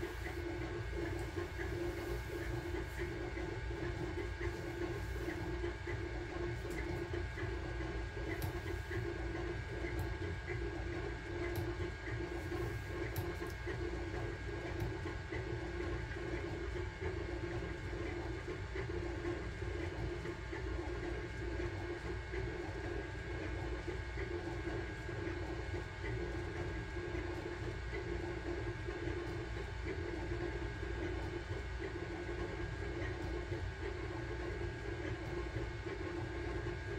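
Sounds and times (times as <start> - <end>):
fan hum: 0.0 - 15.0.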